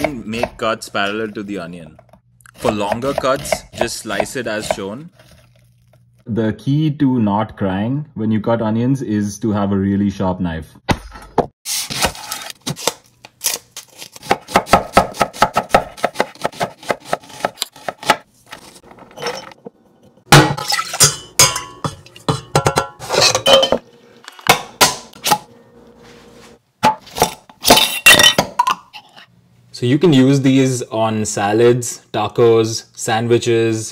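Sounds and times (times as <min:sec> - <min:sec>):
glass jar clinks and scrapes: 0:19.1 - 0:19.6, 0:22.6 - 0:23.8.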